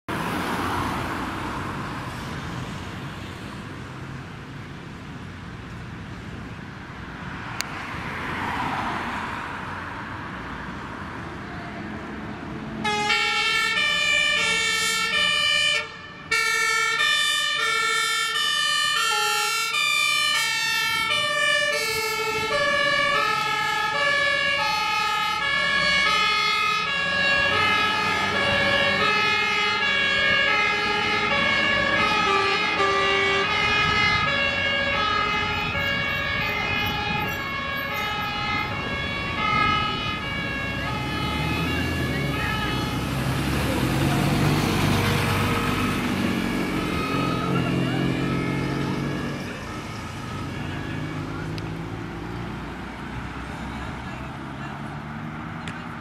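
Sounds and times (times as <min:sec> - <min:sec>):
road traffic passing: 0:00.0 - 0:56.0
two-tone fire engine siren: 0:12.6 - 0:53.6.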